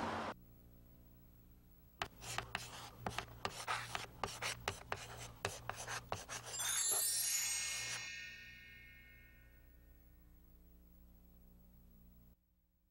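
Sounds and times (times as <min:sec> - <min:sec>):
bright ringing chime: 0:06.4 - 0:10.3.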